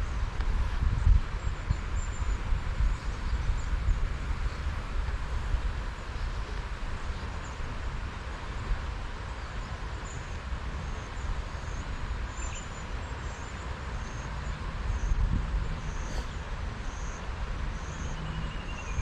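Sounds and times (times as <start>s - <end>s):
wind buffeting microphone: 0.0s - 9.0s, 14.6s - 19.0s.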